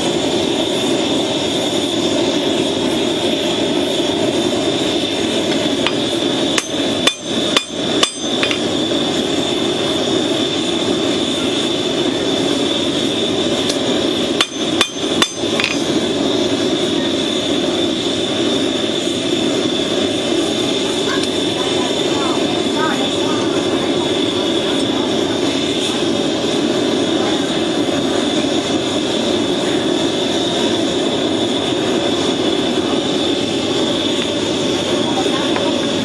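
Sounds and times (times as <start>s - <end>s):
forge rushing noise: 0.0s - 36.0s
hammer striking hot steel: 4.9s - 9.7s, 13.5s - 16.2s, 35.1s - 36.0s.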